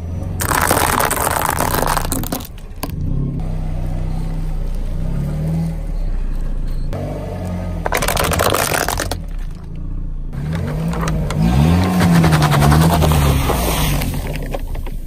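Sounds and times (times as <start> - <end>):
tyre crunching dry pasta: 0.4 - 2.6, 7.8 - 9.6.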